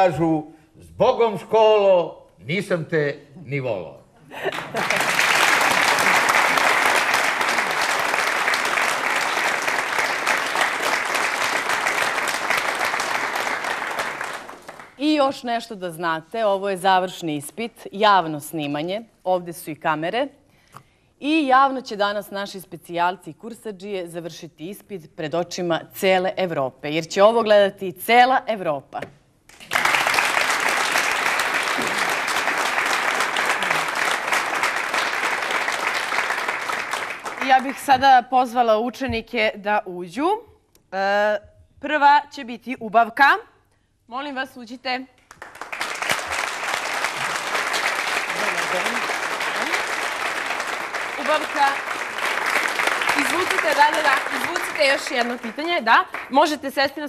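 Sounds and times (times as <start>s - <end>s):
audience applauding: 4.4s - 15.0s, 29.5s - 38.0s, 45.2s - 56.6s.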